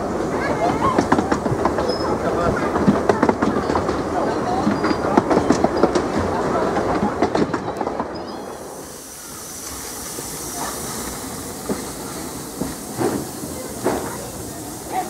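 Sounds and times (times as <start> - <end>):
train wheels clicking over rails: 0.0 - 15.0
steam hissing: 8.0 - 15.0.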